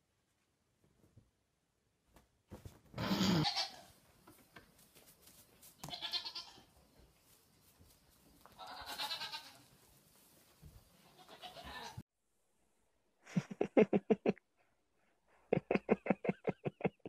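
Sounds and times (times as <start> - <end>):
young goat bleating: 3.0 - 3.9, 5.8 - 6.7, 8.6 - 9.6, 11.2 - 12.0.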